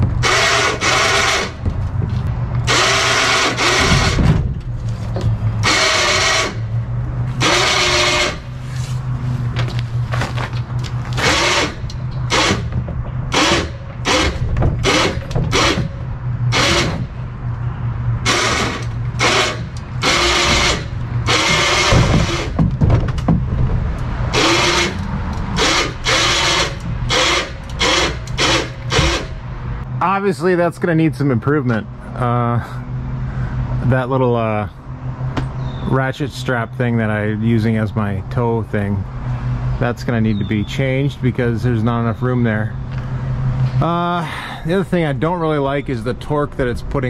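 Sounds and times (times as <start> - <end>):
electric winch motor whining: 0.0 - 1.7, 2.5 - 4.3, 5.5 - 8.7, 11.1 - 17.3, 18.2 - 22.6, 24.2 - 29.4.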